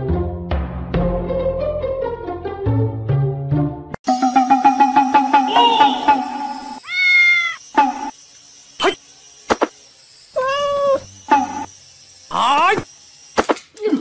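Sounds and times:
cat chirps: 0:06.8 - 0:07.6
cat meowing: 0:06.8 - 0:07.6, 0:10.4 - 0:11.0.

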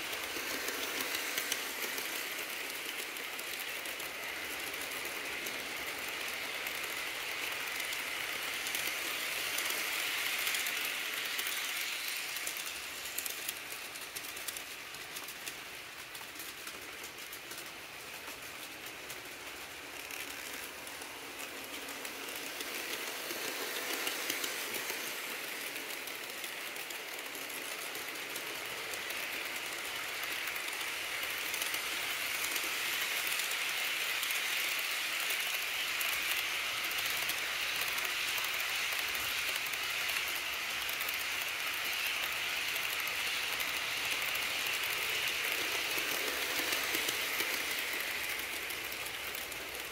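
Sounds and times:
model trains rattling on track: 0:00.0 - 0:49.9
wheels clicking: 0:00.0 - 0:49.9.

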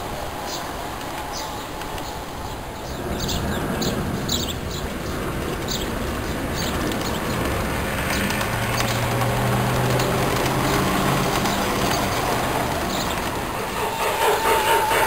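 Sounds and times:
model train rumbling: 0:00.0 - 0:15.0
small birds chirping: 0:00.4 - 0:14.0.

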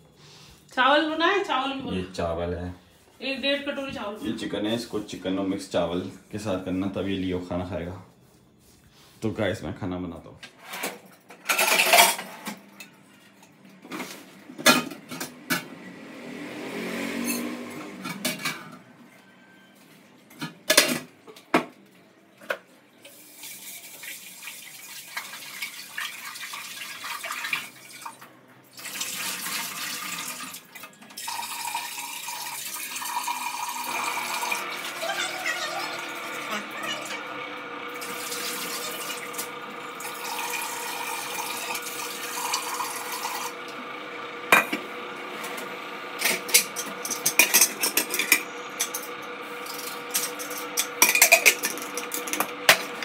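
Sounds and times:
pots and utensils clattering: 0:10.6 - 0:15.7, 0:17.2 - 0:18.9, 0:20.3 - 0:21.8, 0:44.5 - 0:44.8, 0:46.2 - 0:53.0
water running from a tap: 0:23.0 - 0:37.2, 0:37.9 - 0:43.6.

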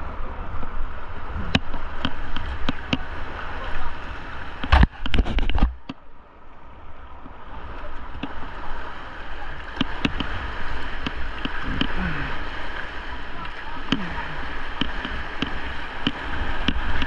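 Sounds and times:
whitewater river rushing: 0:00.0 - 0:05.6, 0:07.0 - 0:17.0
paddle stroke splashes: 0:00.0 - 0:05.9, 0:06.7 - 0:17.0
loud water splashes: 0:07.5 - 0:17.0.

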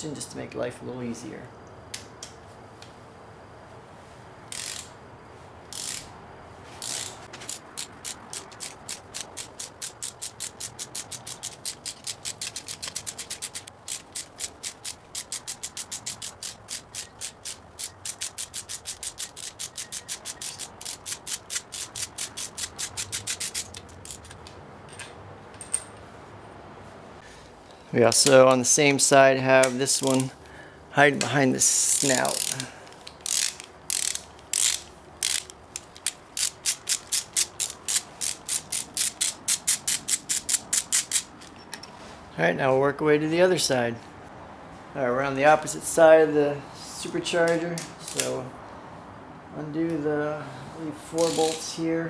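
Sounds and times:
ratchet wrench clicking: 0:04.5 - 0:04.9, 0:05.7 - 0:06.1, 0:06.8 - 0:25.1, 0:31.8 - 0:41.6, 0:48.1 - 0:48.3, 0:51.2 - 0:51.8.

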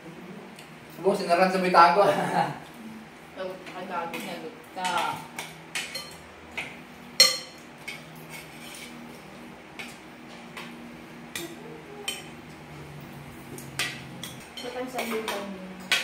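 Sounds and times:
cutlery clinking on plates: 0:04.8 - 0:09.0.

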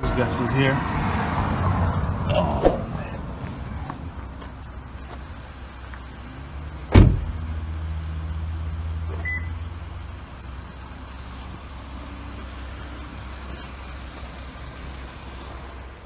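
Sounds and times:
car door slamming: 0:06.9 - 0:07.4
high beep: 0:09.2 - 0:09.6.

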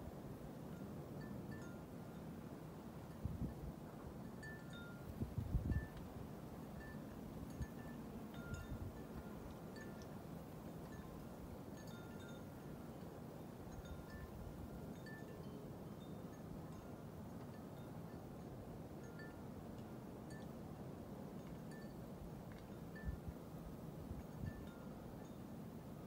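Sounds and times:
wind chimes tinkling: 0:06.8 - 0:10.1, 0:10.7 - 0:18.2, 0:19.0 - 0:19.4, 0:21.4 - 0:23.3.

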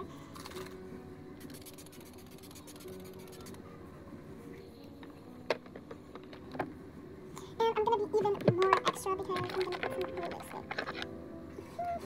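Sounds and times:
makeup products handling noise: 0:04.9 - 0:06.8, 0:08.3 - 0:11.1.

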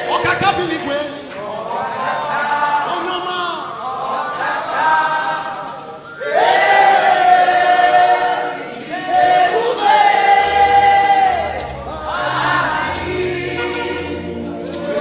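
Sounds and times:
group singing together: 0:00.0 - 0:15.0
low bass notes: 0:10.3 - 0:15.0.

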